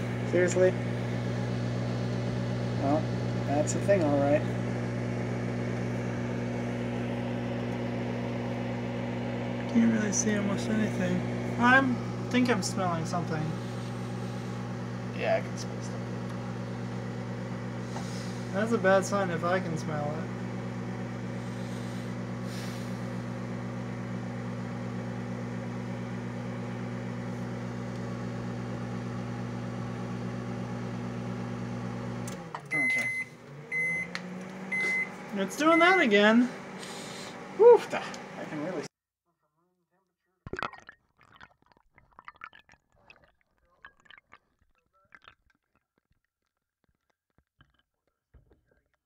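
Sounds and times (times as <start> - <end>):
microwave oven humming: 0.0 - 38.9
water pouring into a glass: 40.5 - 45.8.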